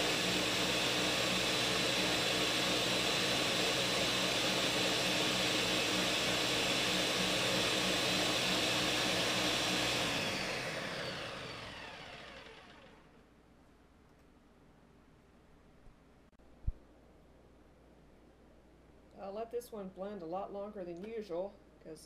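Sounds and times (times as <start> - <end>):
blender running: 0.0 - 13.1
blender motor spinning down: 0.0 - 13.2.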